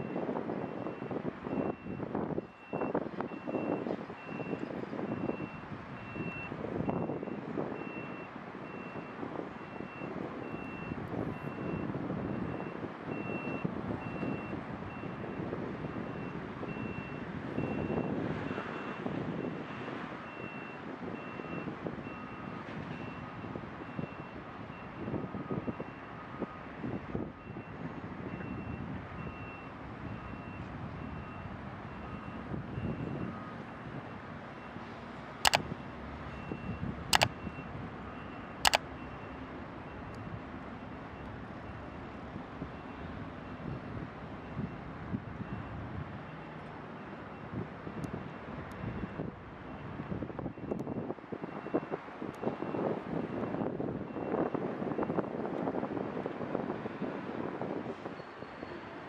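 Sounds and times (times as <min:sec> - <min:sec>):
vehicle reversing beeper: 0:00.0 - 0:33.7.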